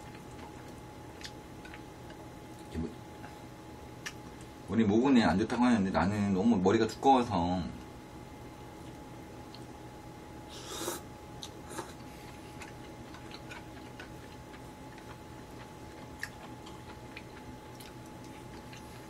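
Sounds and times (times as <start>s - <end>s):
quiet chewing: 0.0s - 3.4s, 8.8s - 9.7s, 11.4s - 19.0s
faint steady hum: 0.0s - 19.0s.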